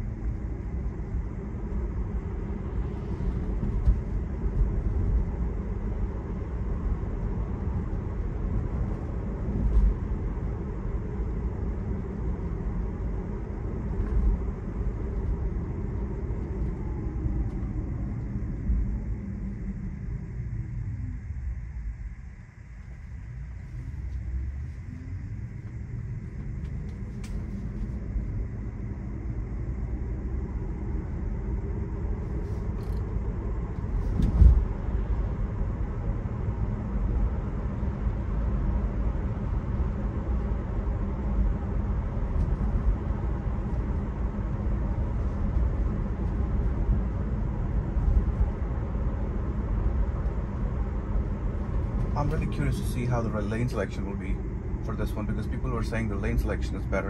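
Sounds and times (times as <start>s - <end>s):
road and tyre rumble in car: 0.0s - 57.0s
thump: 34.1s - 34.7s.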